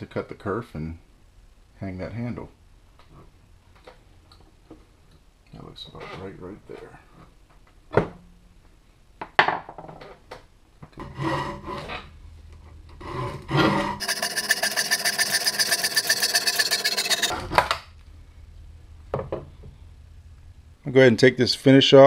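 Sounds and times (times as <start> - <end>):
handsaw cutting wood: 14.0 - 17.4.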